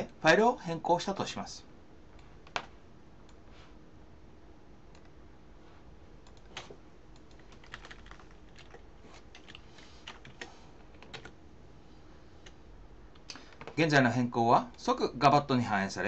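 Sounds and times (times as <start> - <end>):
low steady hum: 0.0 - 16.0
keyboard typing: 6.2 - 11.4.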